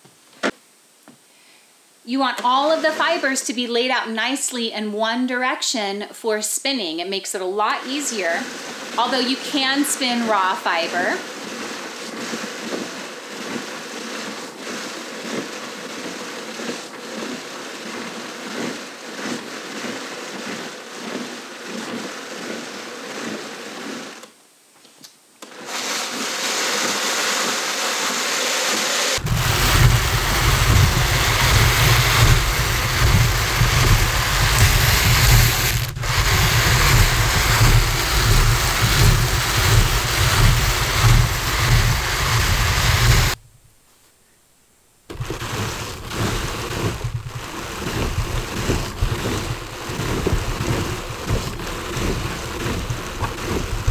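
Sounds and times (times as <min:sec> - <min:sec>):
drum carder rasping fiber: 0:07.3 - 0:24.3, 0:25.4 - 0:43.5, 0:45.1 - 0:53.9
low rumble: 0:29.2 - 0:43.8.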